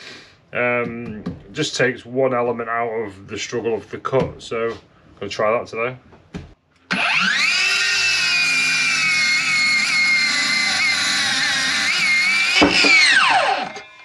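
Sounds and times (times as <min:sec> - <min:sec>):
circular saw cutting wood: 0:06.9 - 0:14.0.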